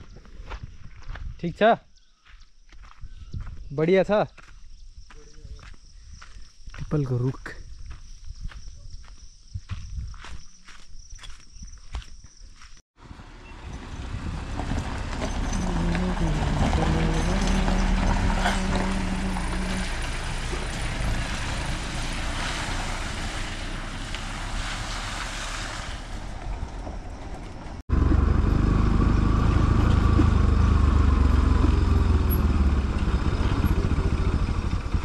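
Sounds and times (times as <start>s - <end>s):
motorcycle engine and wind rumble: 0.0s - 1.6s, 2.8s - 3.8s, 4.6s - 12.0s, 13.1s - 22.4s, 26.3s - 35.0s
pickup truck engine passing: 13.0s - 35.0s.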